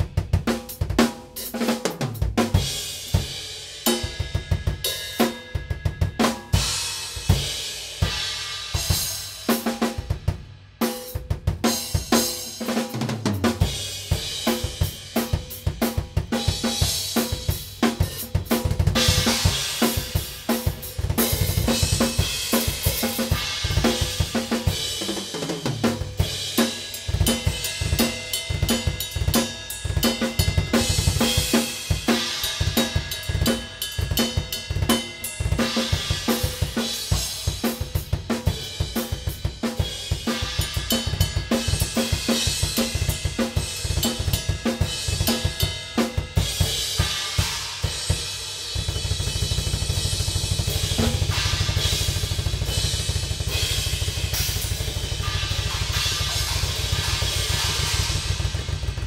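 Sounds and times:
acoustic drum kit played hard: 0.0s - 59.0s
fast bass drum strokes: 0.0s - 59.0s.

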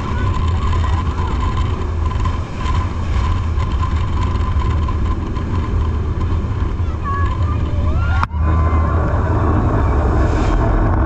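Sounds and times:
boat engine rumble: 0.0s - 11.0s
rushing wind and spray: 0.0s - 11.0s
wavering engine whine: 0.0s - 11.0s.

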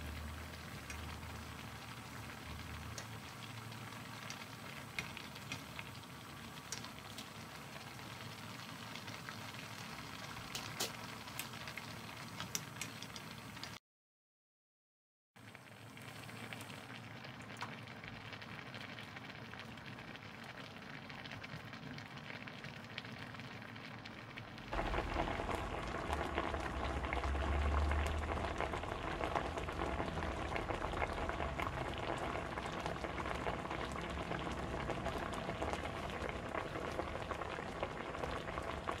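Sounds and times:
stew bubbling in a pot: 0.0s - 13.8s, 15.4s - 39.0s
low rumble: 24.8s - 39.0s.

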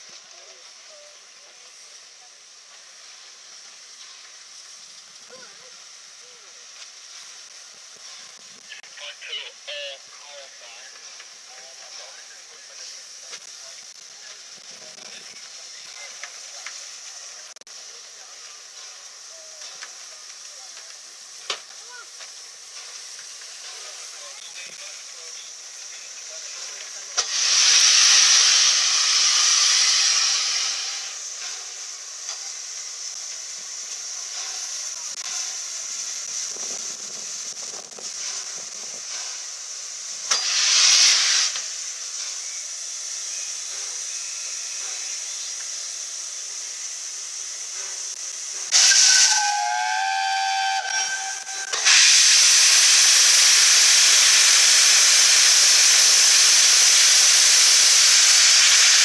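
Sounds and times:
steam locomotive hissing: 0.0s - 59.0s
steam locomotive whistle: 48.7s - 59.0s.

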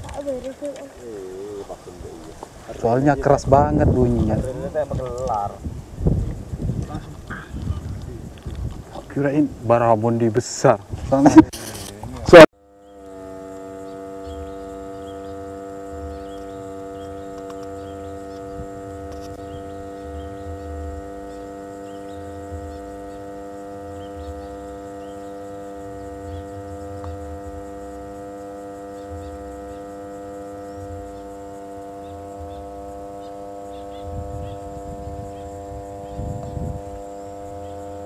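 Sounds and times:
electronic drone chord: 12.3s - 38.0s
soft pulsing low rumble: 12.7s - 38.0s.

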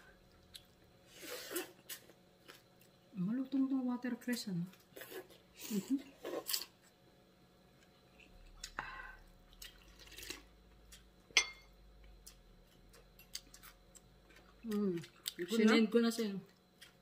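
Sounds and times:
slurping and chewing: 9.5s - 11.1s.

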